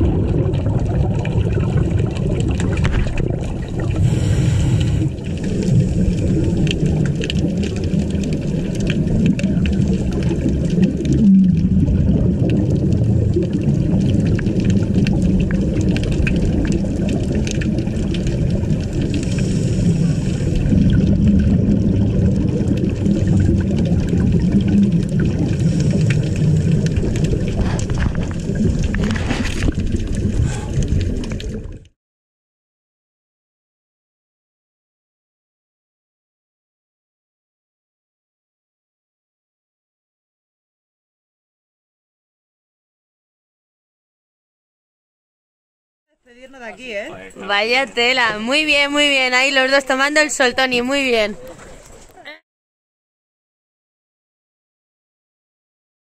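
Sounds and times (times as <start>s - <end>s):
scuba exhaust bubbles hissing: 0.0s - 31.7s
underwater rumble of moving water: 0.0s - 31.9s
fine crackling clicks: 14.0s - 19.5s.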